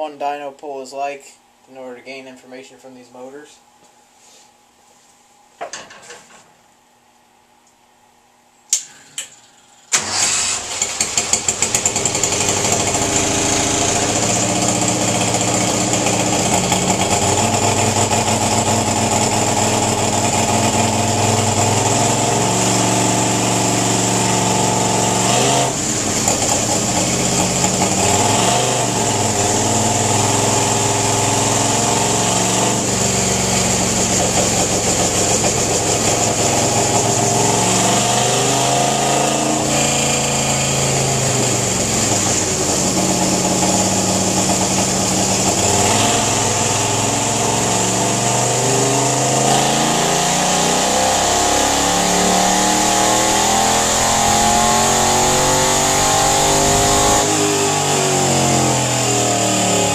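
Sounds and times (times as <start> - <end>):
racing engine running on dyno: 10.0 - 59.9.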